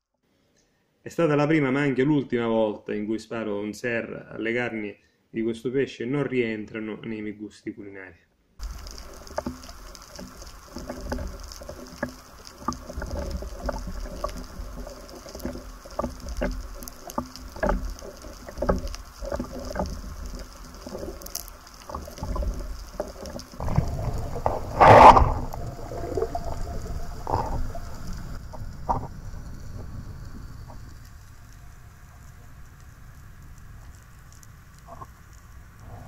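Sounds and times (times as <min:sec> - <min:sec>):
small clicks and knocks of gear: 0:08.6 - 0:25.4
water sloshing: 0:08.6 - 0:31.8.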